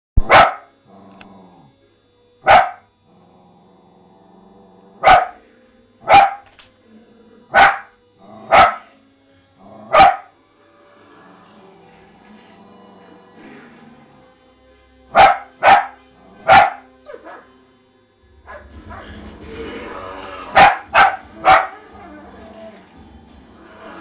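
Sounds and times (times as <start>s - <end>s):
dog barking: 0.2s - 0.7s, 2.4s - 2.9s, 5.0s - 5.4s, 6.0s - 6.5s, 7.5s - 7.9s, 8.5s - 8.9s, 9.9s - 10.4s, 15.1s - 17.5s, 18.5s - 19.2s, 20.5s - 22.0s
television soundtrack: 0.2s - 24.0s.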